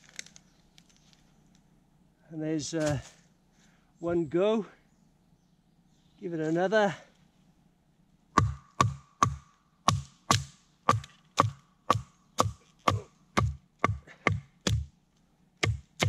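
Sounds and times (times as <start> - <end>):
machete striking wood: 8.4 - 14.9, 15.6 - 16.0.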